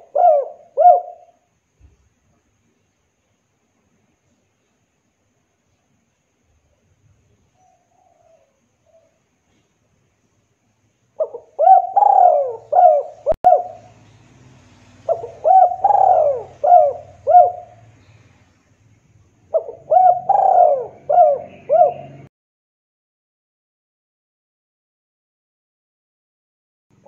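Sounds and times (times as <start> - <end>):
dove cooing: 0.0 - 1.4, 11.2 - 13.9, 15.0 - 18.1, 19.5 - 22.3.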